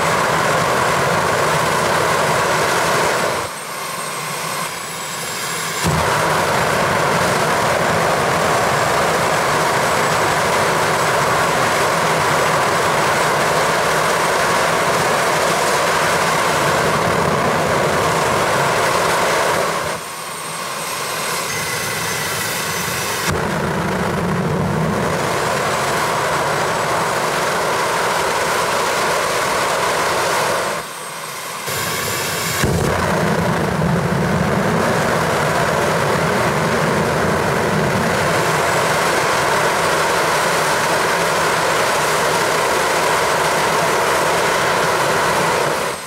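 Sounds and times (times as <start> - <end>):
jet engine afterburner roar: 0.0 - 46.0
jet engine high whine: 0.0 - 46.0
afterburner relighting pop: 5.8 - 6.6, 32.5 - 33.7.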